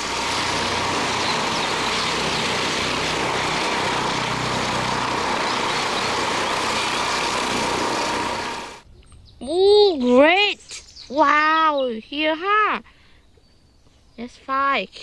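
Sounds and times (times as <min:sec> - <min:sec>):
helicopter turbine and rotor noise: 0:00.0 - 0:08.9.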